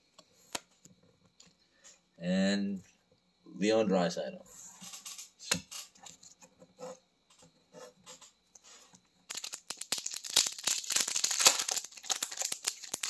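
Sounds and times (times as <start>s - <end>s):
wrapper crinkling as torn open: 9.3s - 13.0s.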